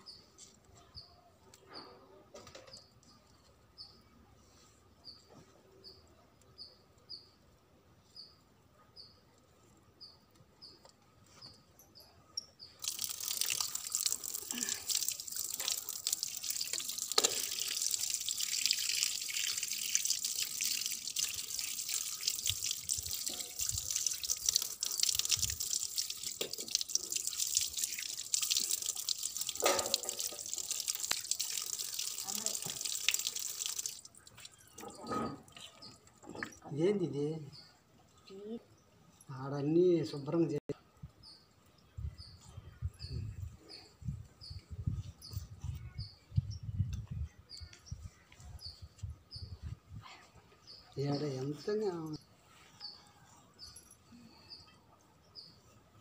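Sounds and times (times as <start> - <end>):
small bird chirping: 10.0 - 29.5
chicken rinsed by hand: 12.8 - 34.9
tap water splashing on concrete: 12.8 - 34.9.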